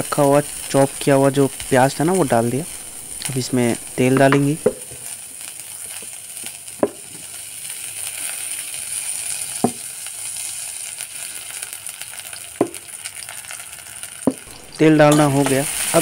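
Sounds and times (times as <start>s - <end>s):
onions sizzling in oil: 0.0s - 16.0s.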